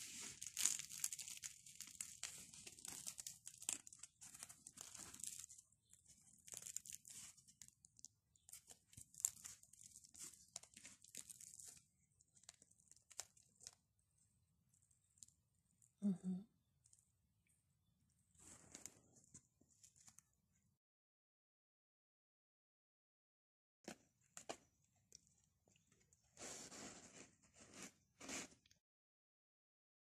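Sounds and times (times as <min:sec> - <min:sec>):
crackling tearing of bread crust: 0:00.0 - 0:13.8.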